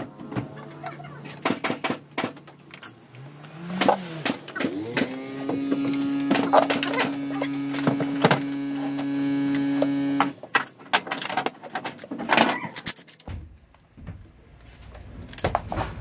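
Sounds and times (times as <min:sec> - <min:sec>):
cordless power tool motor: 0:03.2 - 0:10.4.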